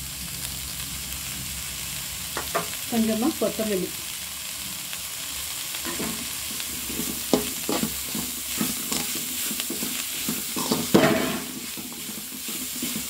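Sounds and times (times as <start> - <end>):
food sizzling: 0.0 - 13.0
metal spoon scraping metal pan: 5.8 - 13.0.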